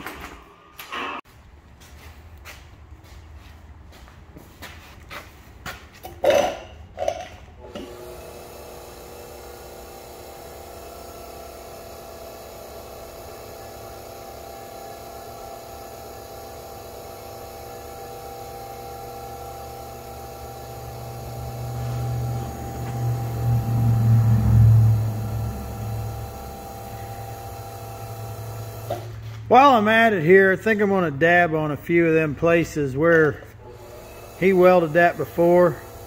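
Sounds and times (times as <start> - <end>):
low hum: 20.5 - 29.5.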